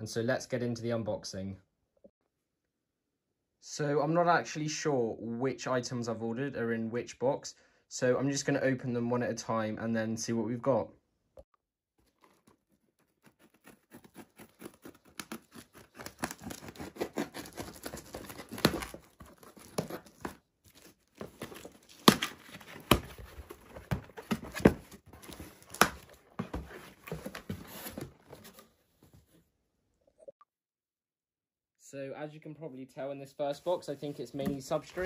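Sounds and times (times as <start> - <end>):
tape tearing: 12.0 - 28.6
cardboard flaps scraping: 12.0 - 29.3, 34.0 - 35.0
scissors slicing packing tape: 12.2 - 20.3.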